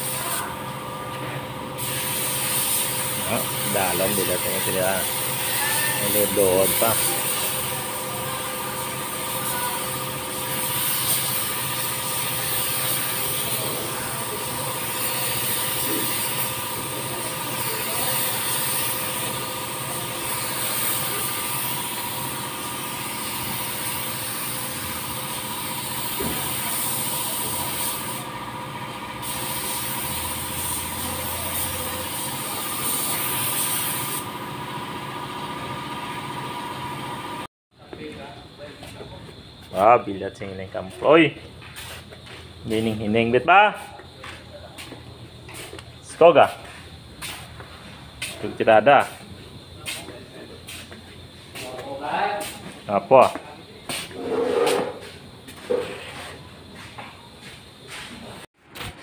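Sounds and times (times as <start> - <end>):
paint spray gun hissing: 0.0 - 0.6, 1.8 - 28.4, 29.2 - 36.8
steady mechanical hum: 0.0 - 59.0.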